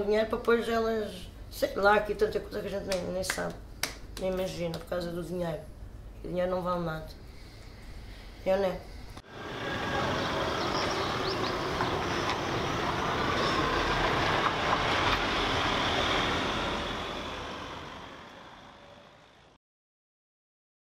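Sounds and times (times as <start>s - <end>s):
cars driving slowly: 9.3s - 19.5s.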